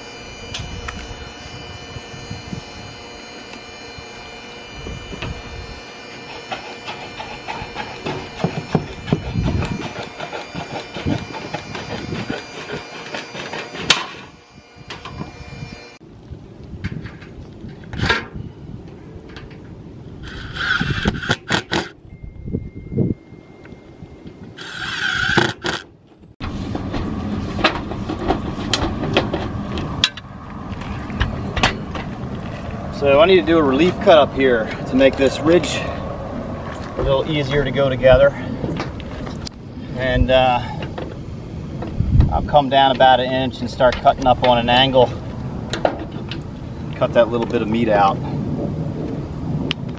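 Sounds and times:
outdoor rush: 0.0 - 22.0, 24.1 - 49.9
cordless drill whirring: 0.1 - 16.0, 20.2 - 21.9, 24.6 - 25.8
snips cutting metal: 6.2 - 15.2, 20.2 - 22.0.

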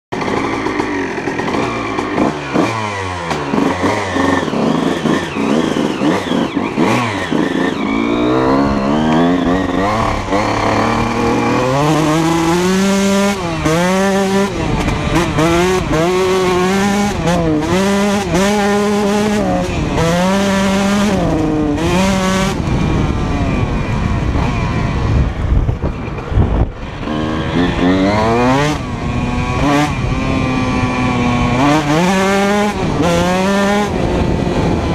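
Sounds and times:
two-stroke motorcycle engine revving: 0.1 - 34.9.

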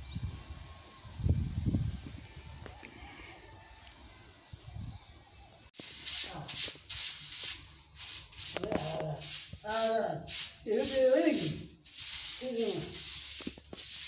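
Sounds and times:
small birds chirping: 0.0 - 14.0
scratchy rubbing noises: 5.8 - 14.0.

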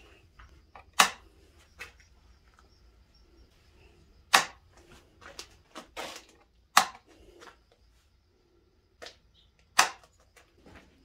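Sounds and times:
relay switching clicks: 0.8 - 1.2.

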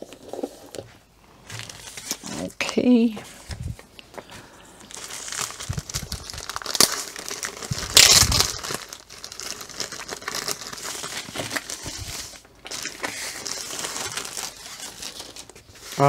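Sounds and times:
plastic wrapping crinkling: 3.4 - 16.0.

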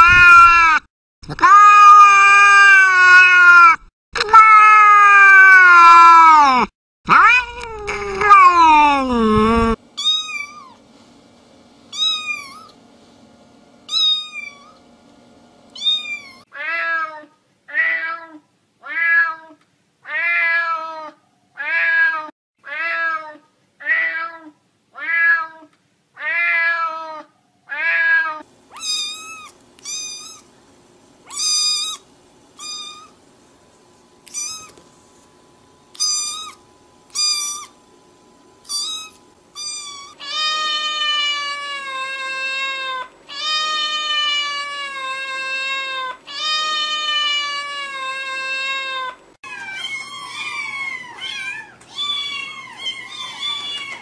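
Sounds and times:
cat lower fuller meows: 1.4 - 9.0, 26.2 - 30.4
cat yowling: 1.4 - 10.8, 11.9 - 12.8, 15.8 - 19.5, 20.1 - 25.6, 26.2 - 30.5, 31.3 - 32.0, 32.6 - 33.1, 34.2 - 34.8, 35.9 - 37.8, 38.6 - 54.0.

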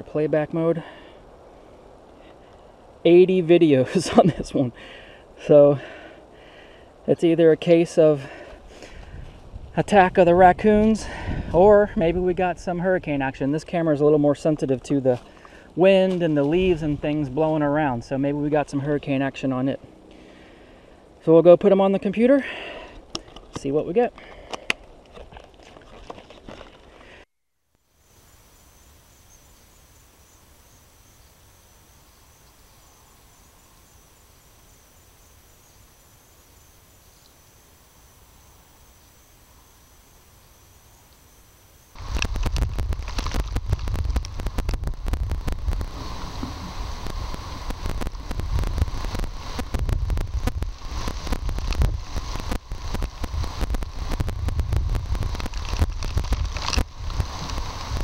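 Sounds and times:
microphone hiss: 0.0 - 24.2, 27.8 - 58.0
wind buffeting microphone: 8.9 - 13.4, 42.0 - 58.0
insect chirping trill: 27.8 - 54.3
sharp crackles and ticks: 41.9 - 58.0.

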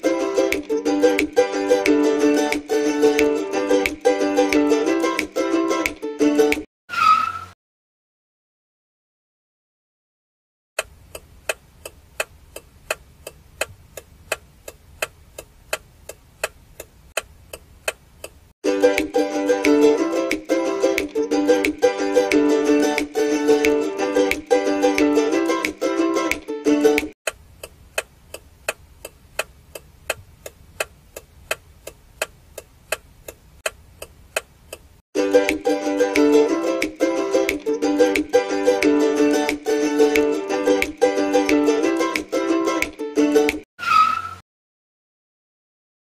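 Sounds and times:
clock-like ticking: 10.8 - 18.4, 27.3 - 34.9.

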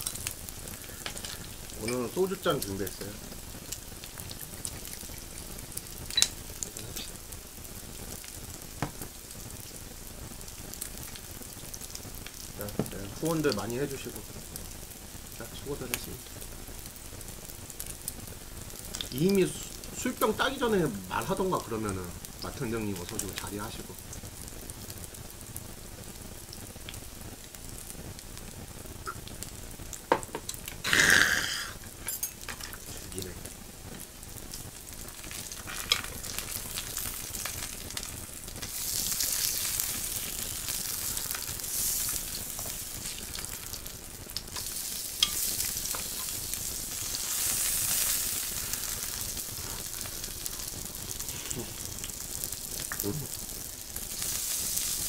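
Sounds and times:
meat sizzling on grill pan: 0.0 - 55.0
fat popping: 29.0 - 32.0
knock: 30.1 - 30.4
loud hissing burst: 30.8 - 31.8, 44.5 - 51.9.

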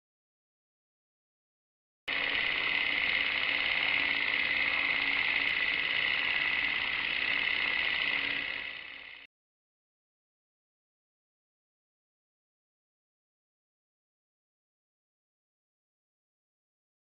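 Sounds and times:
film projector whirring and rattling: 2.1 - 9.3.

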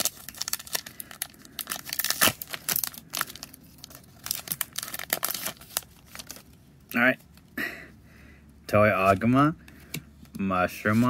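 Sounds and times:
foil wrapper tearing and crinkling: 0.0 - 6.5.

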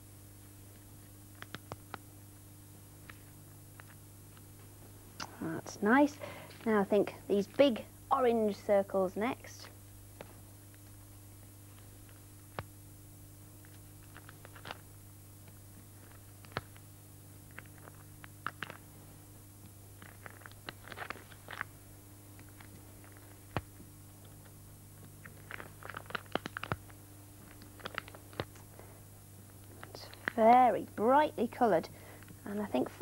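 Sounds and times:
steady low hum: 0.0 - 33.0
stickers peeled and pressed: 13.6 - 14.8, 17.5 - 18.8, 20.0 - 21.7, 22.4 - 28.7.

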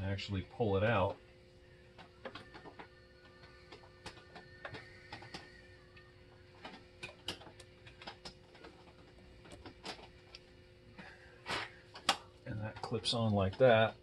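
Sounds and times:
faint mechanical clicks and ticks: 1.8 - 10.8, 11.8 - 14.0.

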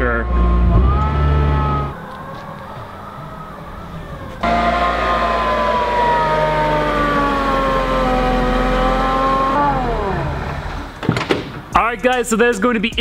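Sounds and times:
supercharger whining: 0.0 - 11.0
car engine: 0.0 - 11.8.

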